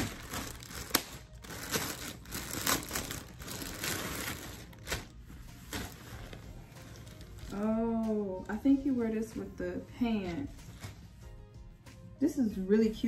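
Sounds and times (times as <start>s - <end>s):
plastic packaging crinkling: 0.0s - 7.7s.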